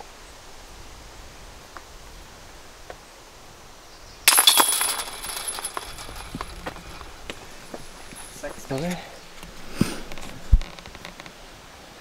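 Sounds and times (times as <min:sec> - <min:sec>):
disc striking basket chains: 0:04.3 - 0:09.4.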